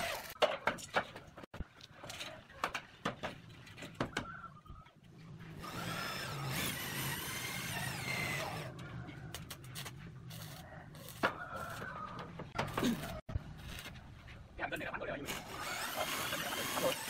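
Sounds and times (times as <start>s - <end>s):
electric drill running: 5.6s - 8.7s, 15.3s - 17.0s.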